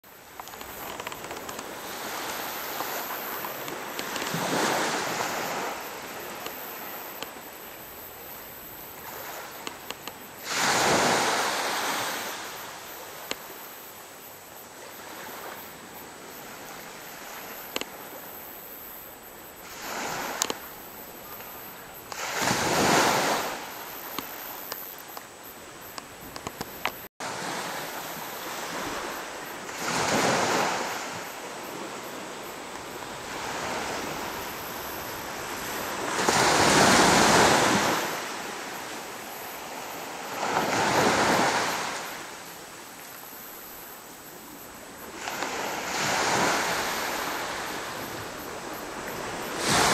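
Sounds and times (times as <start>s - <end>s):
surf breaking on a beach: 0.1s - 7.7s, 8.7s - 13.6s, 21.3s - 24.8s, 25.9s - 42.7s, 44.6s - 49.9s.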